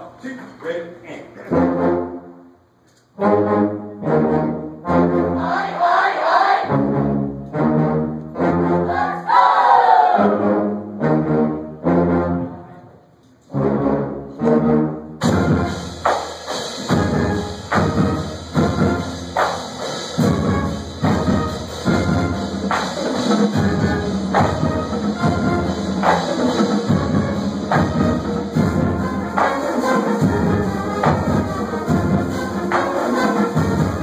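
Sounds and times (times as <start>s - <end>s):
brass band playing chords: 0.0s - 34.0s
drums and cymbals: 15.2s - 34.0s.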